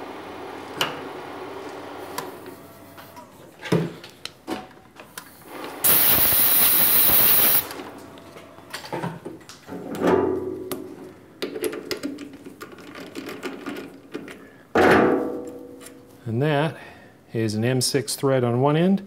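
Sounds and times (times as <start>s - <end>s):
loud steady hiss: 5.8s - 7.8s.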